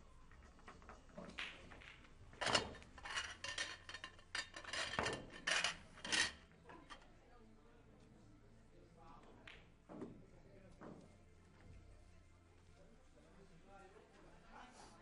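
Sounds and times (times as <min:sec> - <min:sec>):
pool balls clicking: 0:00.3 - 0:06.0.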